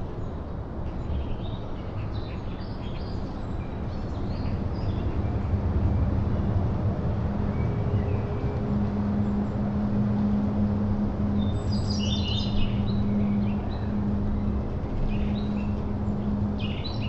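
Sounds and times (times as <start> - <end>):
low steady rumble with hum: 4.2 - 17.0.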